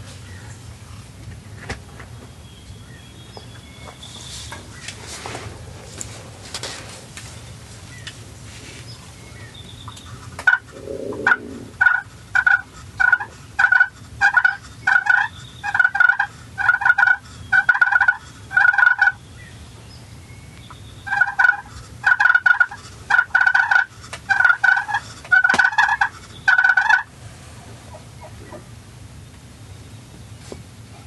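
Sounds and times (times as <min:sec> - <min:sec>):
wild turkey yelping: 0:10.4 - 0:19.2, 0:21.0 - 0:27.1, 0:27.7 - 0:28.7.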